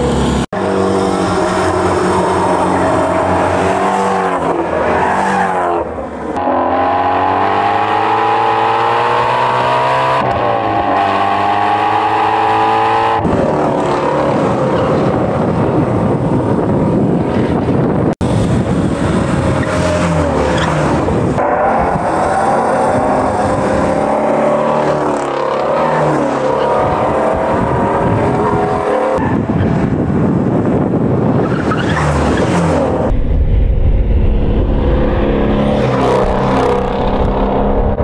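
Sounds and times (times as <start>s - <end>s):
car engine driven hard: 0.0s - 38.0s.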